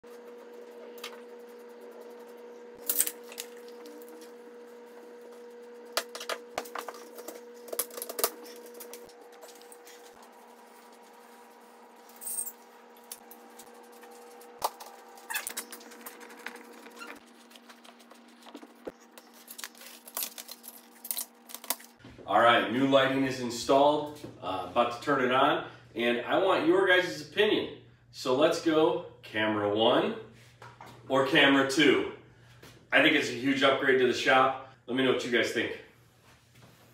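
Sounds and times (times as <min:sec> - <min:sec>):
steady low hum: 0:00.0 - 0:29.3.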